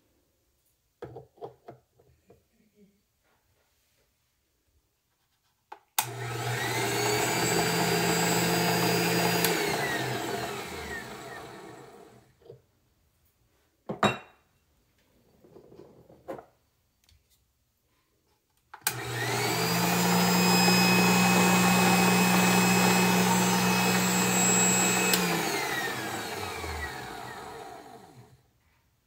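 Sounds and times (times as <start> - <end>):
meat grinder motor running: 6.0 - 12.1, 18.9 - 28.2
meat grinder switch click: 9.4 - 9.6, 25.0 - 25.4.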